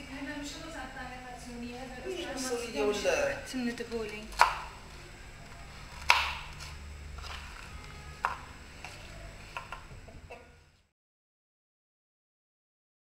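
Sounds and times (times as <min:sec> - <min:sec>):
knife hitting wooden board: 0:04.4 - 0:04.7, 0:06.0 - 0:06.5.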